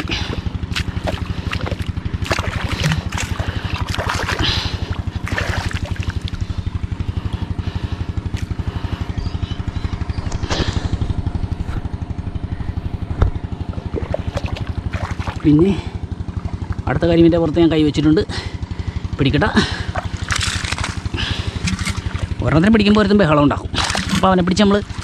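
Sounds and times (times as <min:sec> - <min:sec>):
splashing in muddy water: 0:00.0 - 0:09.1, 0:13.6 - 0:17.0, 0:19.6 - 0:25.0
small engine running: 0:00.0 - 0:25.0.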